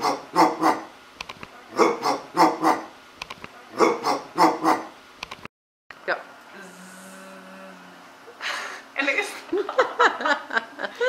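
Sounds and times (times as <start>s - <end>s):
man imitating dog barking: 0.0s - 0.9s, 1.7s - 2.9s, 3.7s - 4.9s.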